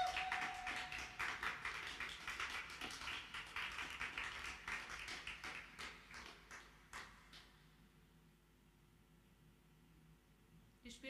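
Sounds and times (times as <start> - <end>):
audience clapping: 0.0 - 7.5.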